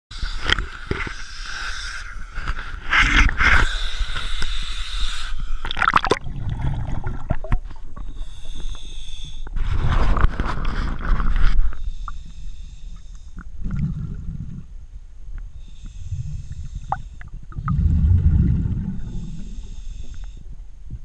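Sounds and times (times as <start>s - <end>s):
underwater gurgling and bubbling: 5.6s - 8.8s, 13.4s - 14.8s, 16.0s - 19.6s.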